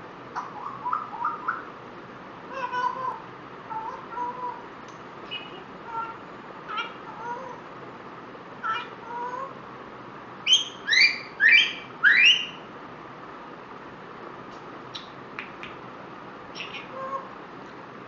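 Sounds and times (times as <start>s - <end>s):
parrot loud rising calls: 2.5s - 4.7s, 10.5s - 12.6s, 16.5s - 17.3s
parrot whistles and clicks: 14.9s - 15.8s.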